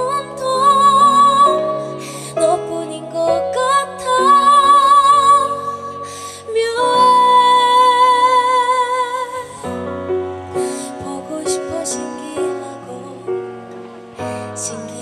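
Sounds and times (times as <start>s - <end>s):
woman singing with vibrato: 0.0s - 9.9s, 10.5s - 15.0s.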